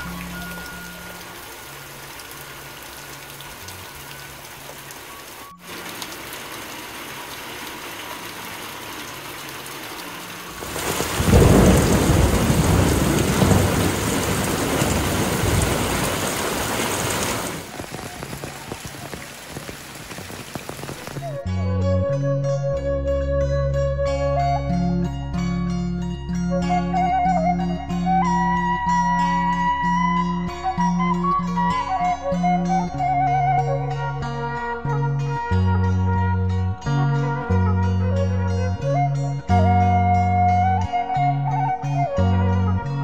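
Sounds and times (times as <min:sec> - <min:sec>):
steady rain falling: 0:00.0 - 0:21.4
thunder rumble: 0:10.6 - 0:21.4.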